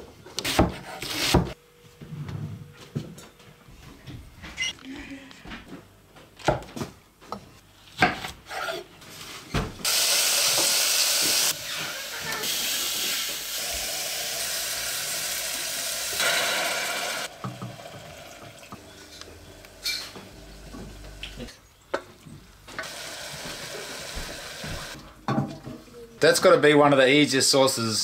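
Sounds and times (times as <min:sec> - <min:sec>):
onions sizzling in a pan: 0:09.9 - 0:18.5, 0:22.8 - 0:25.0.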